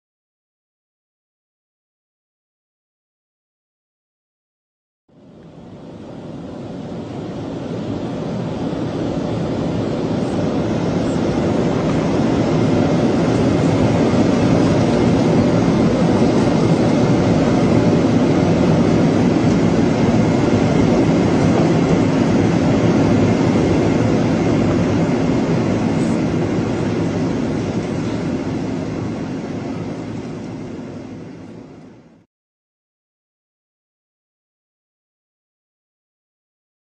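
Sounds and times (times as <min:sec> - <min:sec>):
aircraft engines droning: 0:05.1 - 0:32.3
rushing air in cabin: 0:05.2 - 0:32.3.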